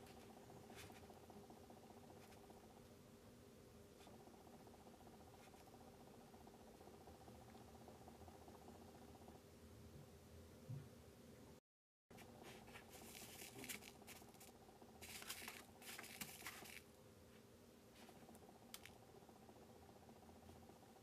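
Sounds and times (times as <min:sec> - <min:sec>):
scratching of sugar sprinkles: 0:12.2 - 0:16.9.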